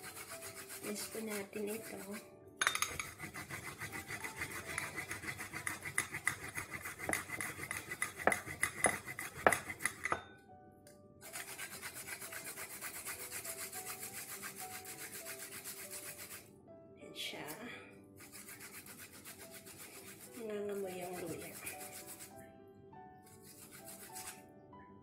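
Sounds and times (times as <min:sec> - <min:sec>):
metal grater rasping: 0:00.0 - 0:02.2, 0:02.8 - 0:10.2, 0:11.2 - 0:16.4, 0:18.2 - 0:22.3.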